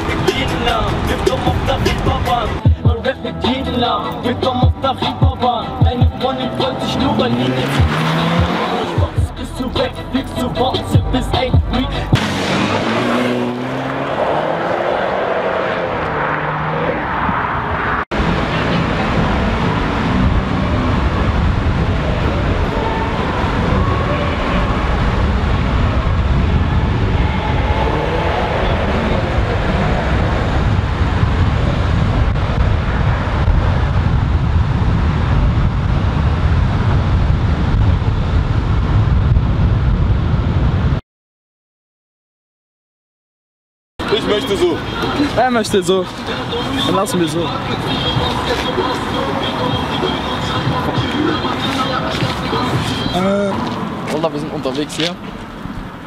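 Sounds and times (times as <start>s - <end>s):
road and wind noise: 0.0s - 41.0s, 44.0s - 56.0s
car engine revving: 3.4s - 37.1s.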